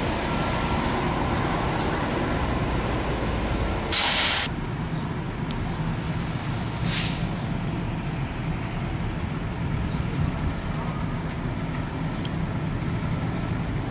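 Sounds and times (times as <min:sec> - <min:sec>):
truck engine running: 0:00.0 - 0:13.9
air brakes hissing: 0:03.9 - 0:04.5, 0:06.2 - 0:07.4.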